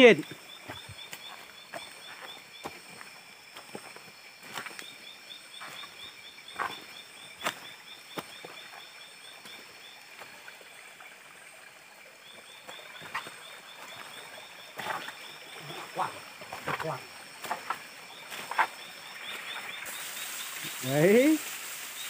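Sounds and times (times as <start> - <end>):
high-pitched insect trilling: 0.0 - 22.0
footsteps on stones: 0.6 - 5.0, 5.6 - 8.8, 13.0 - 14.2, 14.8 - 19.4.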